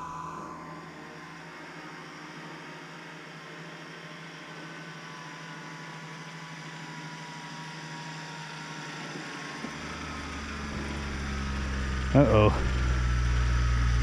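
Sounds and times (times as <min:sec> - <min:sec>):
vehicle engine hum: 0:04.4 - 0:14.0.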